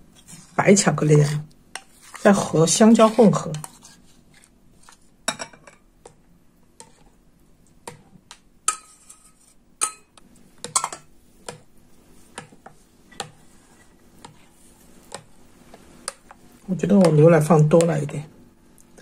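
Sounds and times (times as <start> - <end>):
spoon clinking in metal bowl: 9.8 - 11.1.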